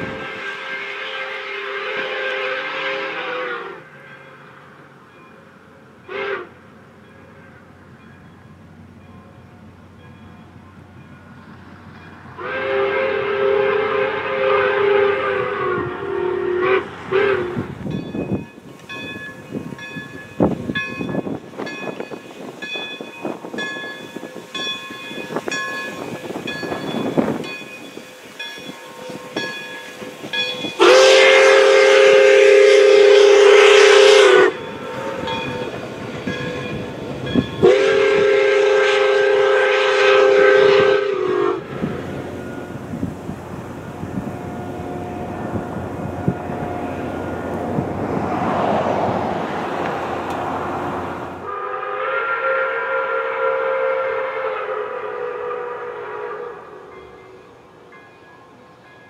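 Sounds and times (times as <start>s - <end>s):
steam locomotive whistle: 0.0s - 4.2s, 6.0s - 6.6s, 12.4s - 18.4s, 23.2s - 43.2s, 43.9s - 47.8s, 51.2s - 57.9s
train running noise: 0.0s - 59.0s.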